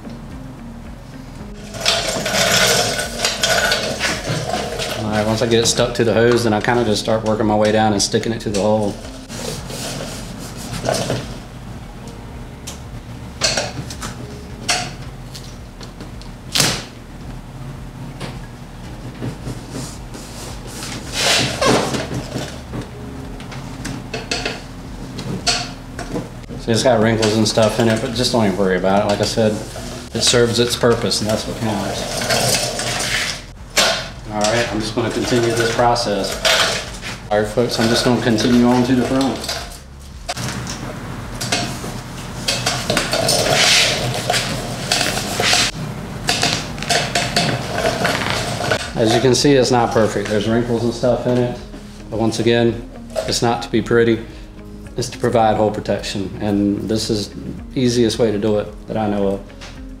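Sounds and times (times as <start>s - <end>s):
duct tape crinkling and rasping: 1.5s - 7.8s, 18.2s - 49.4s
duct tape tearing off roll: 31.8s - 35.8s, 42.5s - 49.0s.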